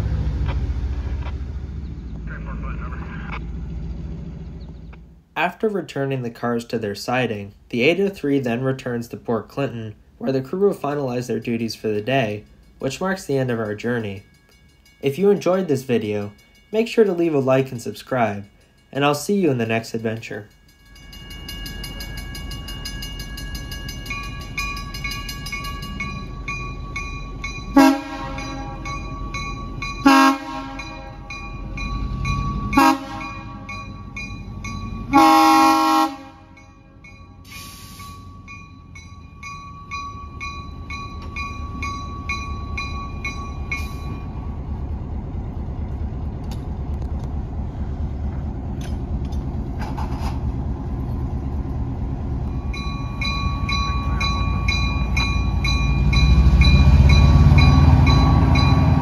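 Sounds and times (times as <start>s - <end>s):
diesel engine rumbling: 0.0s - 59.0s
crossing bell ringing: 10.8s - 45.9s, 51.9s - 59.0s
locomotive horn blasts: 27.7s - 28.9s, 30.0s - 31.3s, 32.7s - 33.7s, 35.1s - 36.6s.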